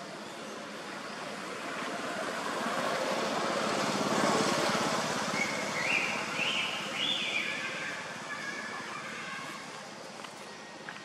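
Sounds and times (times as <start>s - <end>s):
vehicle engine passing: 1.3s - 8.4s.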